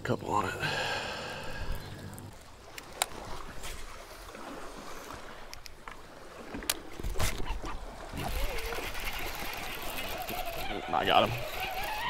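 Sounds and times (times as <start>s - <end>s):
waves lapping against boat hull: 1.1s - 12.0s
fishing reel clicks: 8.2s - 12.0s.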